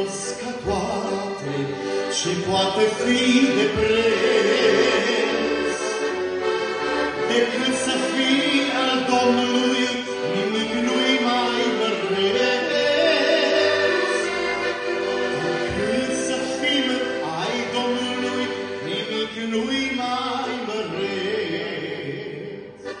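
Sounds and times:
man singing: 0:00.0 - 0:06.1, 0:07.2 - 0:14.6, 0:15.3 - 0:23.0
accordion: 0:00.0 - 0:23.0.

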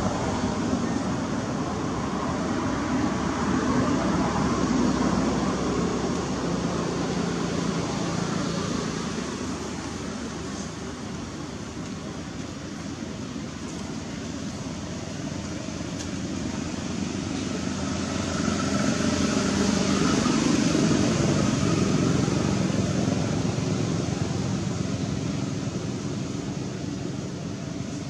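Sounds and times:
vehicle passing by: 0:16.2 - 0:27.0.

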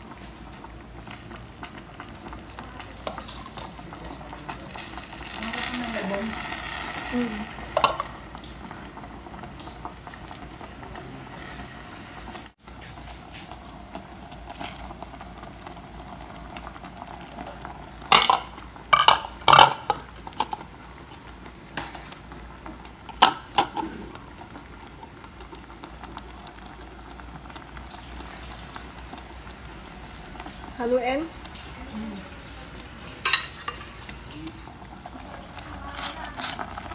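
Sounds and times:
pot bubbling and hissing: 0:00.0 - 0:36.9
dish knocking against pot: 0:07.8 - 0:08.1.

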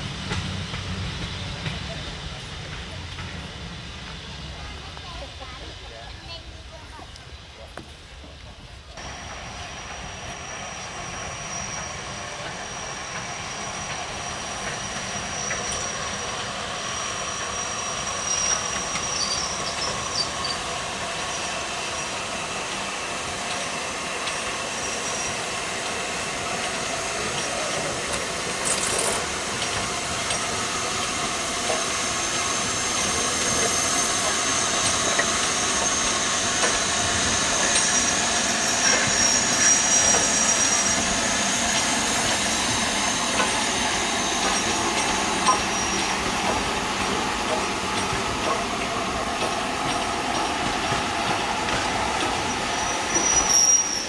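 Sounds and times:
steam hissing: 0:00.0 - 0:54.0
train rumbling on rails: 0:00.0 - 0:54.0.

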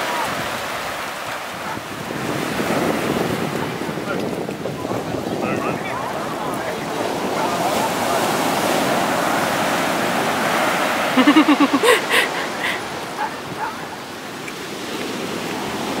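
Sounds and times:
ocean surf washing onto beach: 0:00.0 - 0:16.0
dog barking: 0:01.2 - 0:01.9, 0:13.1 - 0:14.0.

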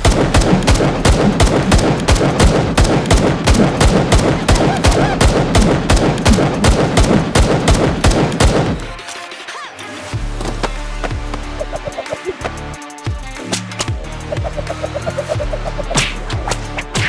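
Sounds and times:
rapid automatic gunfire: 0:00.0 - 0:08.9.

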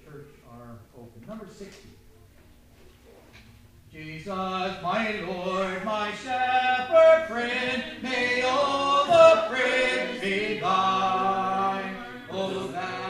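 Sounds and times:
congregation singing a hymn: 0:04.0 - 0:13.0.

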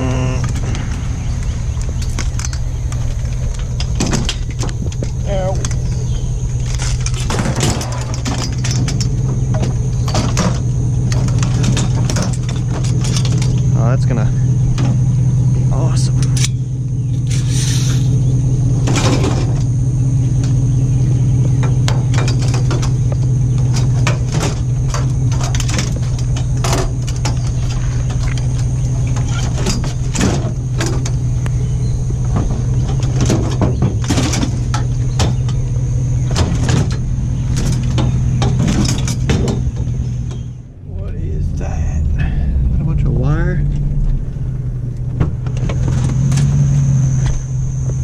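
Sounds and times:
truck engine idling: 0:00.0 - 0:48.0
scrap clanking: 0:00.4 - 0:13.8, 0:21.4 - 0:40.7.

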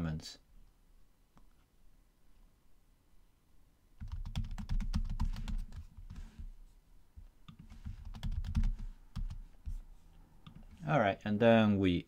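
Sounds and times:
typing on computer keyboard: 0:04.0 - 0:06.2, 0:07.5 - 0:09.4, 0:10.4 - 0:10.8.

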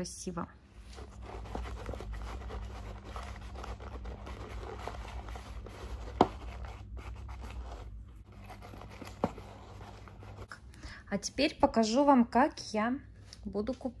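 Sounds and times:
paper towel scraping plastic: 0:00.8 - 0:10.6.

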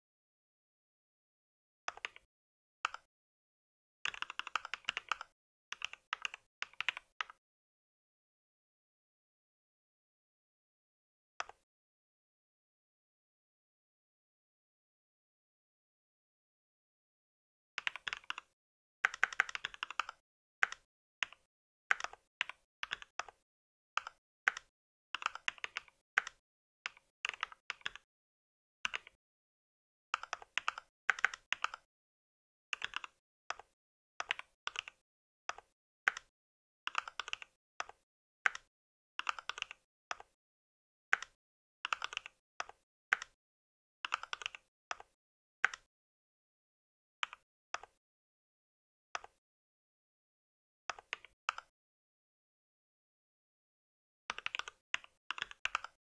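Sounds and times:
mechanical keyboard typing: 0:01.9 - 0:02.3, 0:04.1 - 0:07.4, 0:17.8 - 0:18.5, 0:19.1 - 0:23.4, 0:24.0 - 0:28.0, 0:28.9 - 0:29.2, 0:30.2 - 0:31.9, 0:32.8 - 0:36.3, 0:36.9 - 0:40.3, 0:41.2 - 0:43.4, 0:44.1 - 0:45.9, 0:54.3 - 0:56.0.

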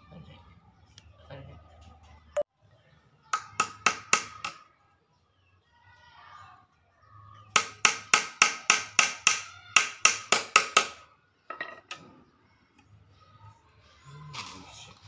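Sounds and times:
small hammer tapping wood: 0:03.4 - 0:04.6, 0:07.6 - 0:11.0.

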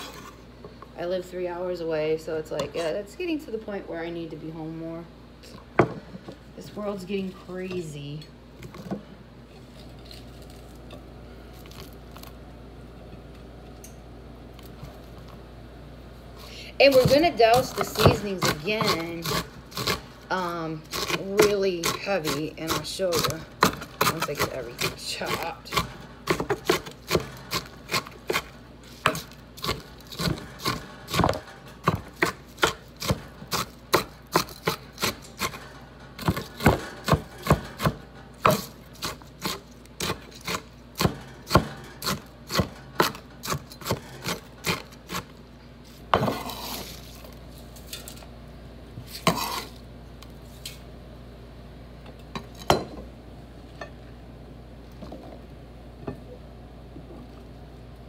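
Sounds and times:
knife scraping board: 0:00.0 - 0:00.4, 0:46.2 - 0:47.3, 0:49.1 - 0:49.8.

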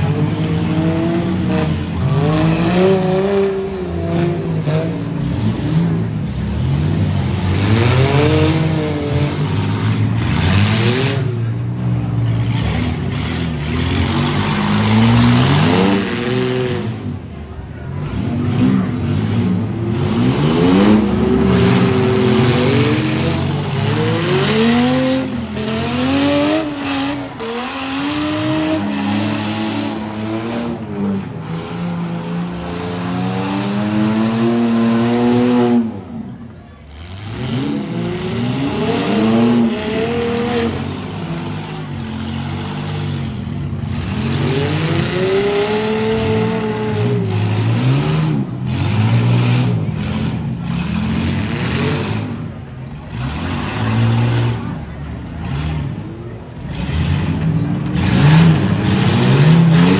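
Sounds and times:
engines revving: 0:00.0 - 0:59.9.

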